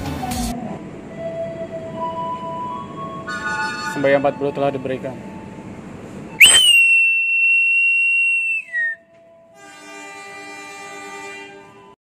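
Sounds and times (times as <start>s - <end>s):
locomotive horn chord: 1.2s - 6.2s, 9.0s - 12.0s
whistle blown high tone: 6.4s - 9.1s.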